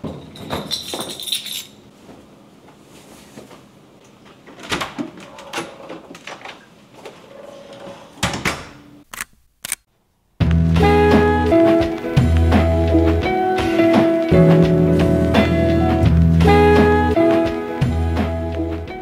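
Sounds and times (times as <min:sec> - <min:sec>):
keys jingling: 0:00.0 - 0:01.8.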